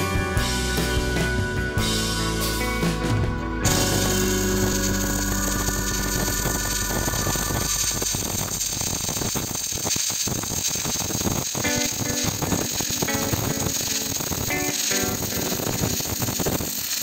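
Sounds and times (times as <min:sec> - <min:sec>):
welding arc crackling: 0:03.6 - 0:17.0.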